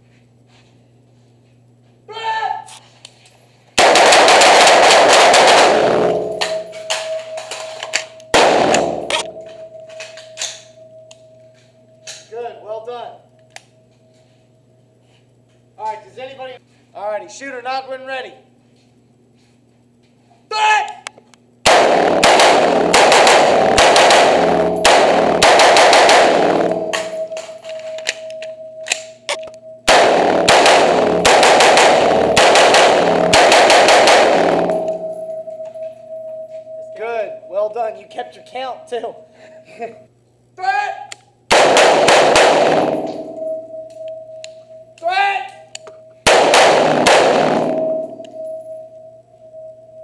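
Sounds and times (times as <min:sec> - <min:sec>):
rifles firing indoors: 0:03.7 - 0:12.3, 0:21.6 - 0:36.5, 0:41.1 - 0:49.9.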